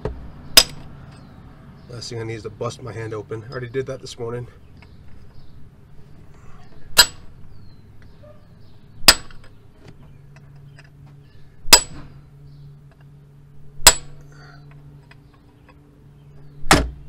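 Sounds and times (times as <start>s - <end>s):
hammer striking metal: 7.0s - 7.3s, 9.1s - 9.4s, 11.7s - 12.0s, 13.8s - 14.2s.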